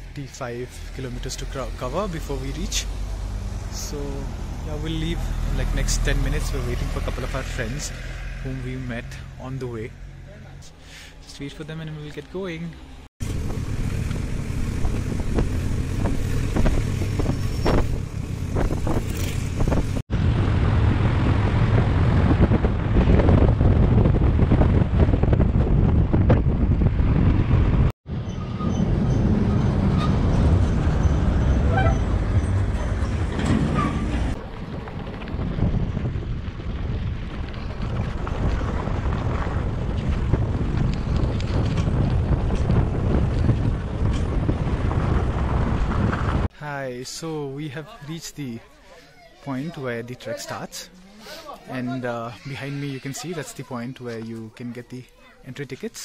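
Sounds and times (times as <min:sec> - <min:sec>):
passing traffic: 0:00.0 - 0:47.8
wind rushing over microphone: 0:13.2 - 0:46.5.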